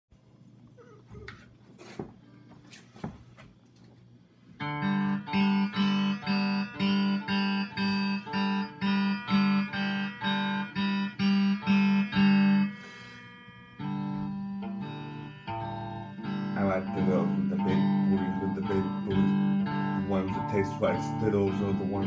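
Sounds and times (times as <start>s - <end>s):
electric guitar strumming chord: 4.6s - 22.0s.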